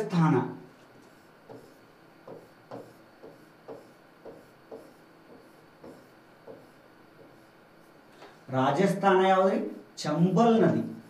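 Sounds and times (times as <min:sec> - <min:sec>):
chalk tapping and scraping on chalkboard: 0:00.8 - 0:08.4.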